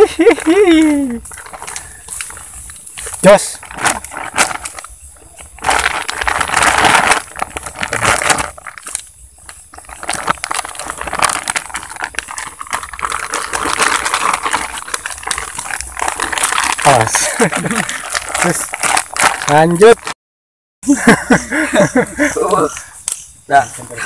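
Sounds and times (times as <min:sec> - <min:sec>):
plastic bag crinkling: 0:00.0 - 0:20.2.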